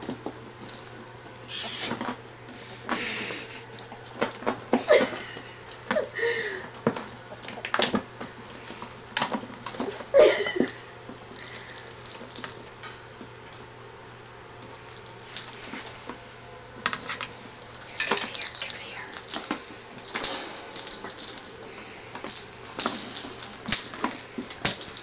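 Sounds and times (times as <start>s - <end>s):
metallic jingling and rattling: 0.0s - 2.1s, 5.0s - 7.8s, 10.6s - 12.9s, 14.7s - 15.7s, 17.0s - 25.0s.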